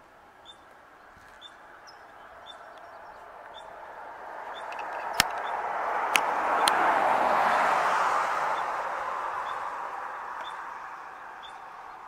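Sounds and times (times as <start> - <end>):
passing vehicle rushing: 2.2 - 12.0
sharp clicks: 4.6 - 5.5
small bird chirping: 10.4 - 10.7, 11.4 - 12.0.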